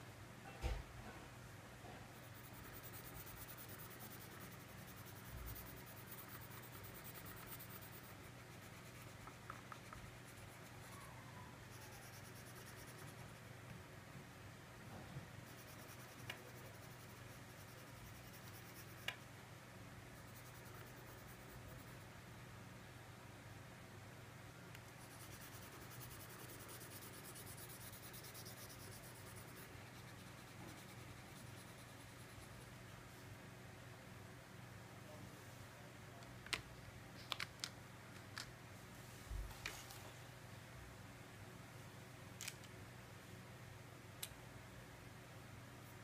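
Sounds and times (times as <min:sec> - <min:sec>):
crayon scratching on paper: 0:02.2 - 0:11.0, 0:11.7 - 0:13.4, 0:25.0 - 0:32.6
small sharp clicks: 0:42.4 - 0:42.8.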